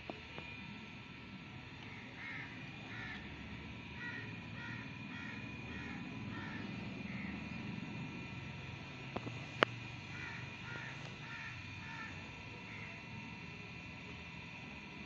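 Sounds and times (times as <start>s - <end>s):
crows cawing: 1.8s - 7.7s, 10.0s - 13.1s.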